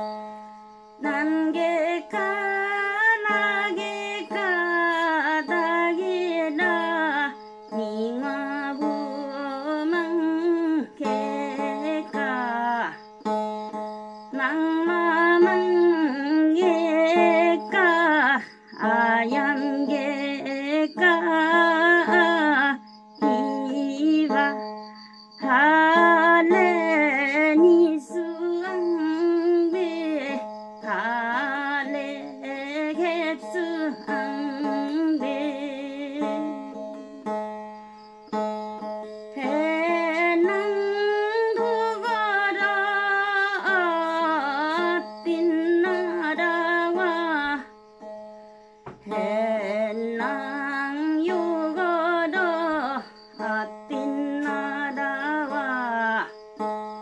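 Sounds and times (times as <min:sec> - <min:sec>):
woman singing folk song: 0:00.0 - 0:57.0.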